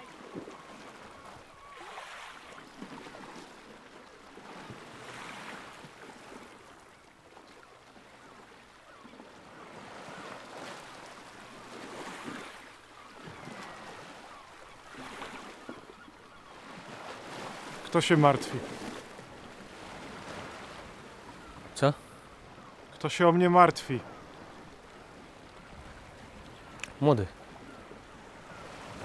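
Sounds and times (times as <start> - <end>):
wind: 0.0 - 29.0
sea waves washing in: 9.6 - 29.0.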